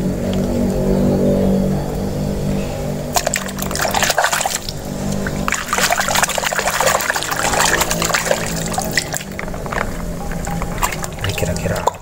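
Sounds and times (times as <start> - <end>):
steady music: 0.0 - 12.0
hand splashing in soapy water: 3.1 - 11.6.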